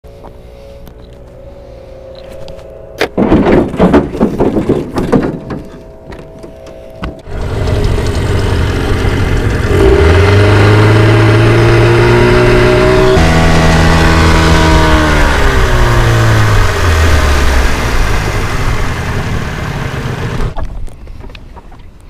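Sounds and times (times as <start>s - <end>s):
outboard motor running: 7.2s - 20.6s.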